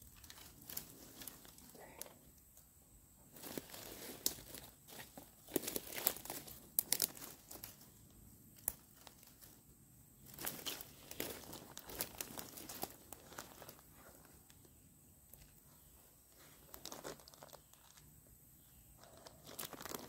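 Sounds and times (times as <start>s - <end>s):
brush and leaves rustling: 0.0s - 2.6s, 3.2s - 20.0s
twigs snapping: 5.4s - 7.8s.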